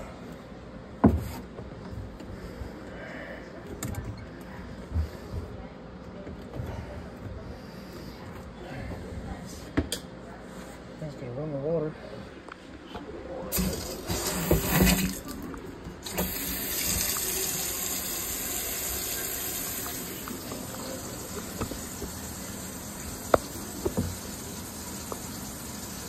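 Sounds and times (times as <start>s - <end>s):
faucet running into sink: 13.5s - 15.4s, 16.0s - 26.0s.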